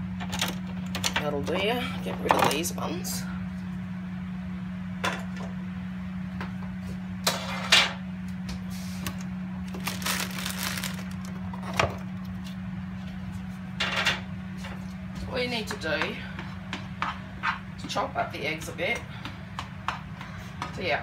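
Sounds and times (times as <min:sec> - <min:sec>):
low hum: 0:07.9 - 0:15.4.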